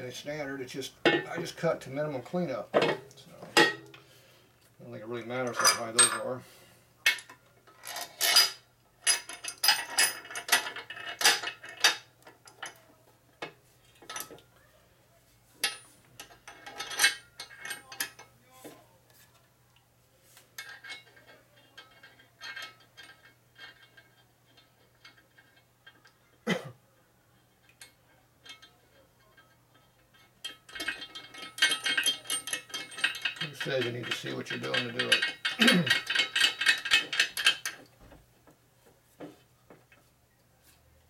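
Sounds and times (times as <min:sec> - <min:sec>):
metal hardware clinking: 0:02.7 - 0:04.1, 0:05.4 - 0:06.4, 0:07.0 - 0:14.5, 0:15.6 - 0:18.8, 0:20.5 - 0:26.2, 0:27.6 - 0:37.9.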